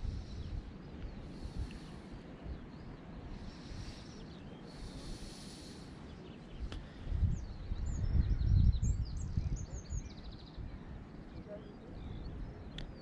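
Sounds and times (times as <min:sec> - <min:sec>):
birds chirping: 0:00.0 - 0:13.0
wind gusts on microphone: 0:00.0 - 0:13.0.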